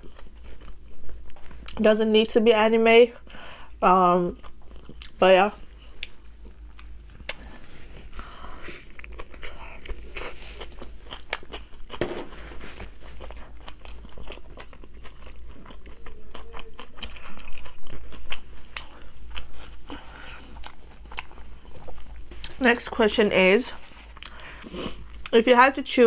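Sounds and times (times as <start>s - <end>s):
crunchy chewing: 0.0s - 1.8s, 4.3s - 22.6s.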